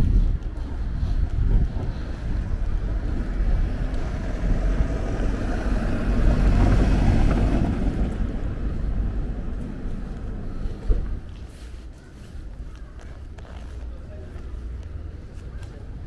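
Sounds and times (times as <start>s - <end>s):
vehicle passing: 0.0s - 11.8s
wind buffeting microphone: 0.0s - 13.7s.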